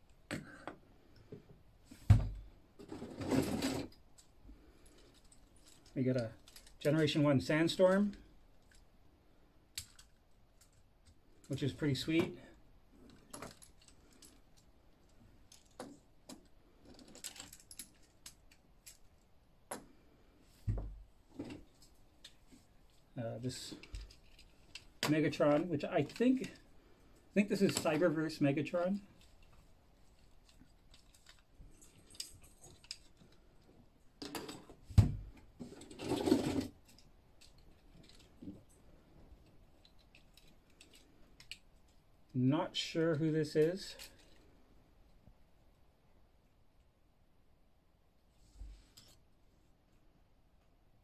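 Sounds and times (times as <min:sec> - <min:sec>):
plastic figures clicking and rattling: 0:04.9 - 0:06.8, 0:09.7 - 0:11.6, 0:13.0 - 0:19.2, 0:23.7 - 0:26.6, 0:29.2 - 0:34.7, 0:39.4 - 0:42.0
rustling scrape: 0:35.6 - 0:36.8.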